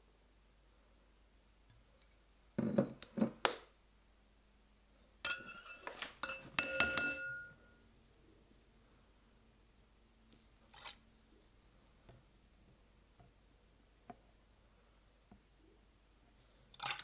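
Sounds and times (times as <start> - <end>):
metal spoon clinking on glass bowl: 5.2 - 7.8.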